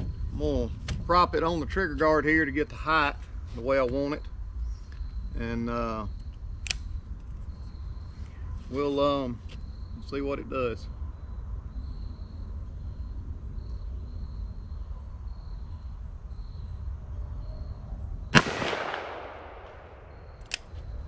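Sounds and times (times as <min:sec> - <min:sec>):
revolver gunshot with echo: 0:18.3 - 0:20.4.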